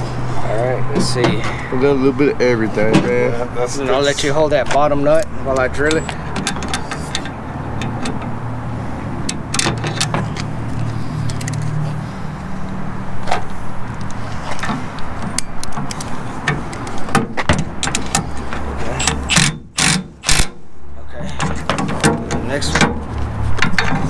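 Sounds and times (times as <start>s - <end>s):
metal clicks and knocks: 5.5s - 8.4s, 9.2s - 11.7s, 13.3s - 20.5s, 21.4s - 24.0s.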